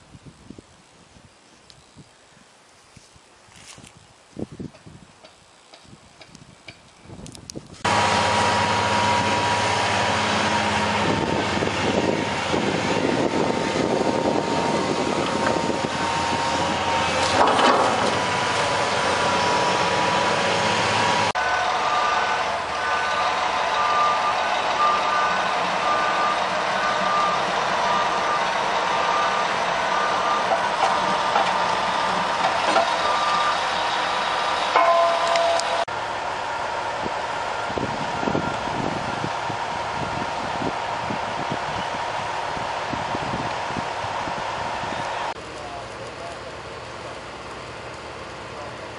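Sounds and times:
excavator diesel engine whining: 7.8 - 48.9
backup alarm beeping: 21.4 - 32.2, 32.8 - 35.8.

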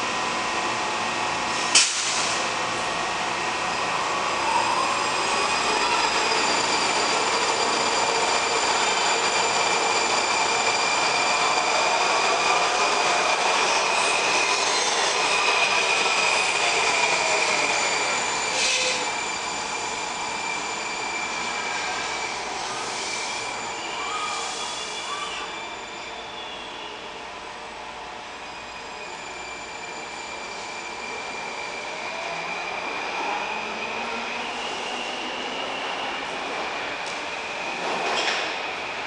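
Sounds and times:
subway train rumbling past: 0.0 - 39.0
high-pitched wheel squeal: 4.5 - 27.0.

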